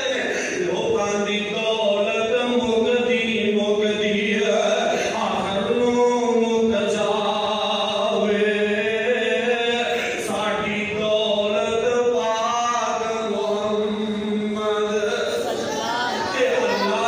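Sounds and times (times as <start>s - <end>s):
man chanting: 0.0s - 17.0s.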